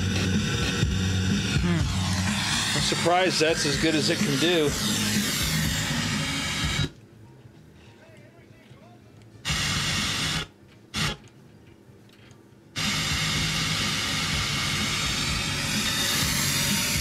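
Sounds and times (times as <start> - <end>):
radio static hiss: 0.0 - 6.9.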